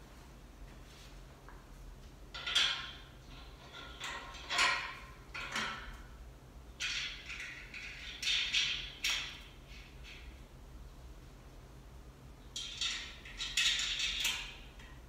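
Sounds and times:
metal parts scraping and rattling: 2.3 - 5.9, 6.8 - 10.3, 12.6 - 14.7.

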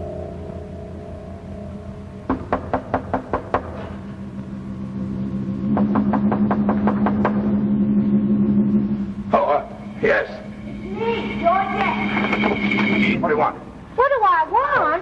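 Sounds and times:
low steady tone: 0.0 - 14.0
rapid knocking: 5.8 - 7.5.

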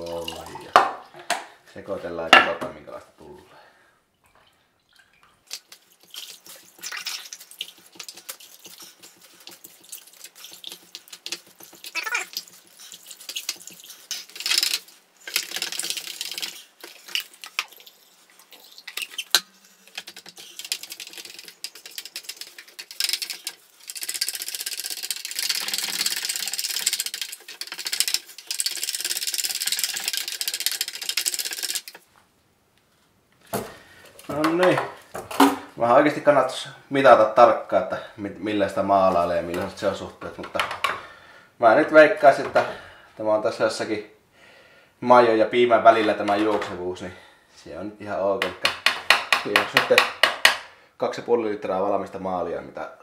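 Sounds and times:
stick stirring paint in metal can: 5.5 - 32.1, 48.5 - 50.5.

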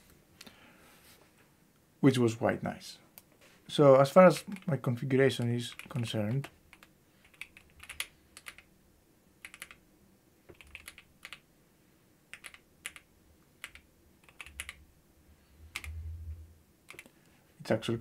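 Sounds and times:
faint keyboard typing: 4.3 - 8.7, 9.4 - 9.8, 10.5 - 11.4, 12.3 - 14.8, 15.7 - 16.0, 16.8 - 17.4.

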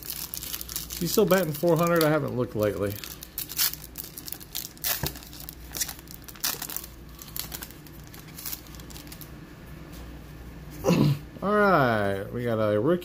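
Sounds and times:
wrapper crinkling and tearing: 0.0 - 9.3.

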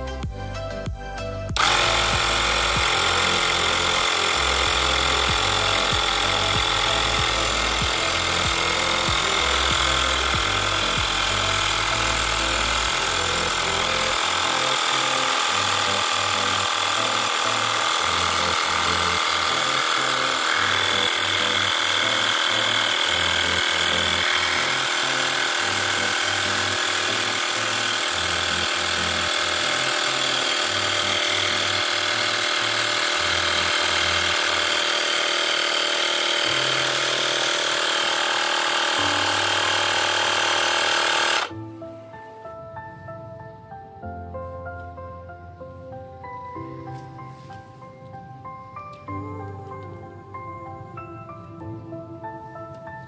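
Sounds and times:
electric air pump rattling: 1.5 - 41.6.

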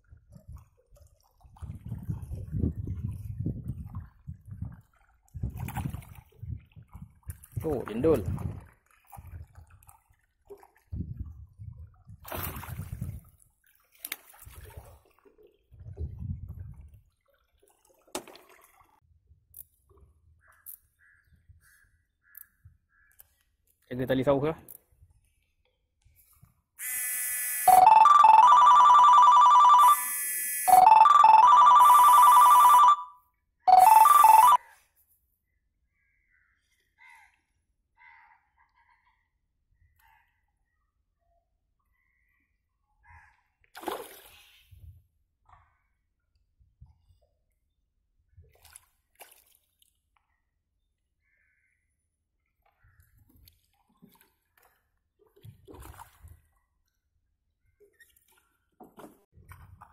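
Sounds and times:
water splashing by boat: 0.0 - 19.0, 48.5 - 50.2, 53.0 - 56.9
wind buffeting on microphone: 1.5 - 9.6, 10.9 - 13.3, 15.7 - 17.0
phone ringtone trill: 26.8 - 34.6.

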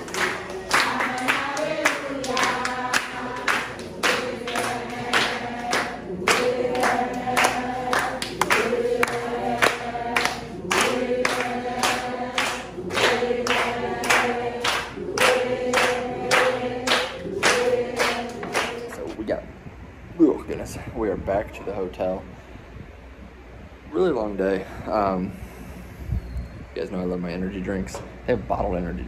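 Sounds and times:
congregation singing in unison: 0.0 - 19.2
rhythmic hand clapping: 0.0 - 19.2.

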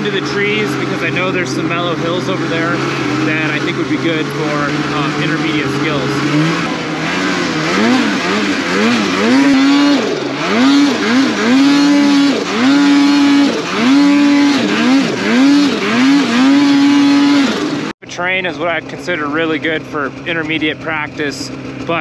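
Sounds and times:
snowmobile engine revving: 0.0 - 22.0.

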